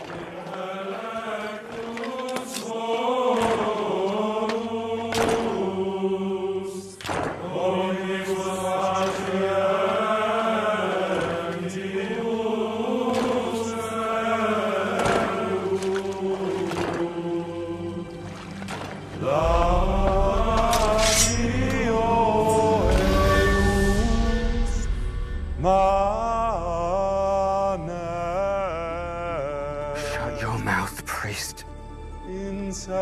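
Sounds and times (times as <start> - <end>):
men chanting plainchant: 0.0 - 18.0, 25.7 - 31.6.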